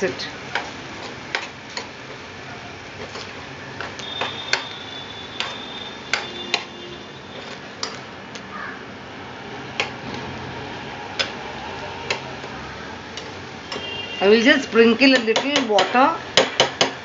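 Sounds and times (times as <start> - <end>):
spoon scraping and knocking pan: 0.5 - 2.2, 3.0 - 8.1, 13.2 - 16.9.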